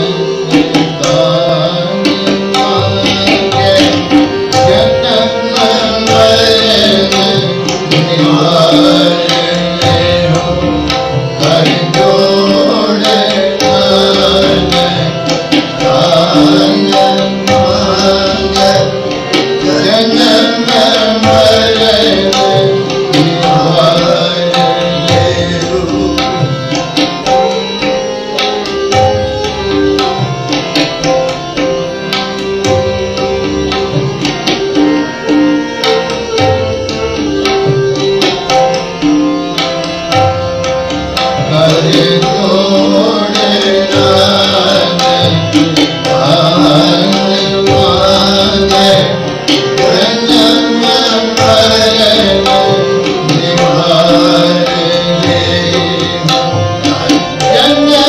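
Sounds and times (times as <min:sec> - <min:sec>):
person singing: 0:00.0 - 0:28.2, 0:41.4 - 0:58.0
tabla playing: 0:00.0 - 0:58.0.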